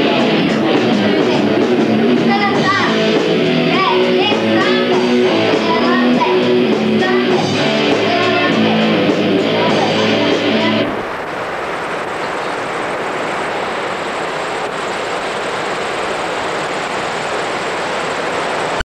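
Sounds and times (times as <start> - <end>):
rock band with electric guitars: 0.0 - 11.1
ocean surf breaking: 0.0 - 18.8.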